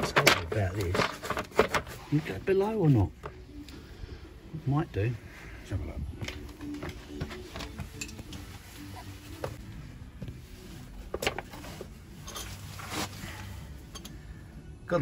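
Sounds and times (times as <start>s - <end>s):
plastic cover clicking and rattling: 0.0s - 1.9s.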